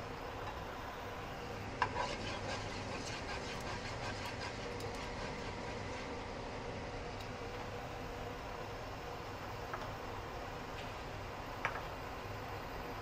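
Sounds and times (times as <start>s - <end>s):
range hood fan running: 0.0s - 13.0s
spatula scraping in pot: 1.8s - 6.2s.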